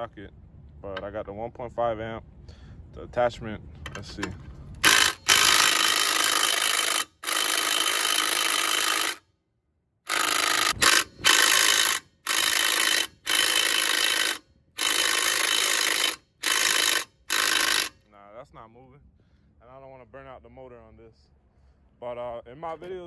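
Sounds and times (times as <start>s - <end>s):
impact driver hammering lug nut: 4.8s - 9.2s, 10.1s - 17.9s.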